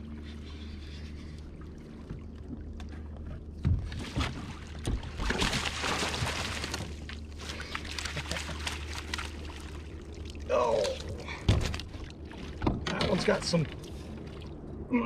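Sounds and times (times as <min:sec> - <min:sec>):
fish splashing at water surface: 0:03.9 - 0:12.5
steady low rumble: 0:06.5 - 0:15.0.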